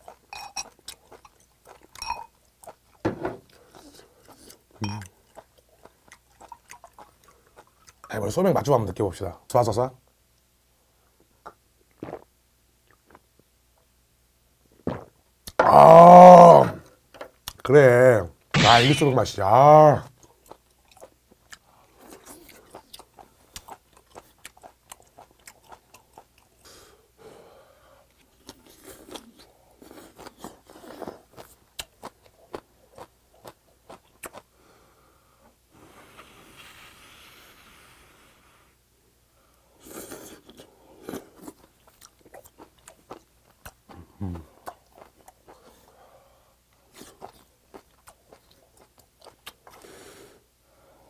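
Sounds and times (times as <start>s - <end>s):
man chewing food: 0.0s - 8.1s, 11.4s - 13.4s, 20.2s - 27.1s, 28.1s - 35.6s, 39.8s - 50.2s
soft steady hiss: 0.0s - 51.0s.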